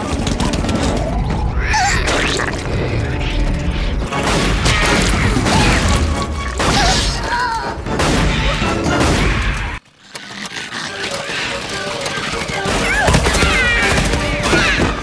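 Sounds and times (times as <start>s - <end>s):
rapid clicking and rattling legs: 0.0s - 1.5s, 9.8s - 15.0s.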